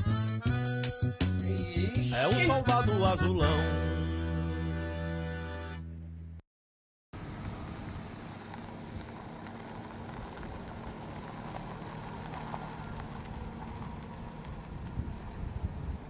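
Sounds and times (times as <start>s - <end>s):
car engine hum: 7.2s - 16.0s.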